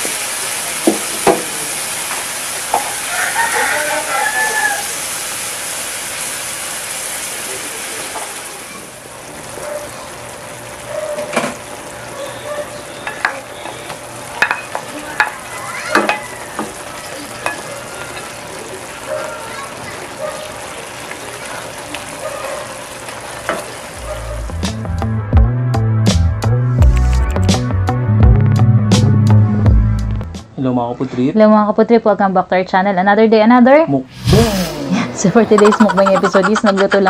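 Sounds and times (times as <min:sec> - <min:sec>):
meat sizzling in a frying pan: 0:00.0 - 0:24.0.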